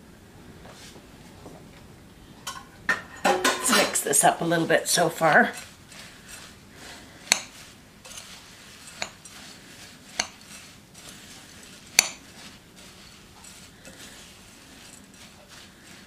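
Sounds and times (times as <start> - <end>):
spoon stirring oats: 3.6 - 16.0.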